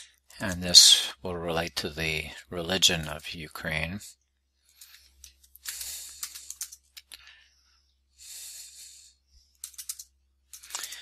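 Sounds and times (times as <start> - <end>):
computer keyboard typing: 5.6 - 7.1, 9.6 - 11.0.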